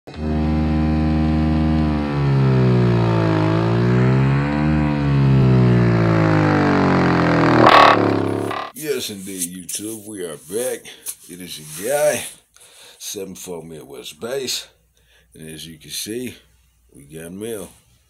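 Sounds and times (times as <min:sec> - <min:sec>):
subwoofer playing deep bass: 0:00.1 - 0:08.7.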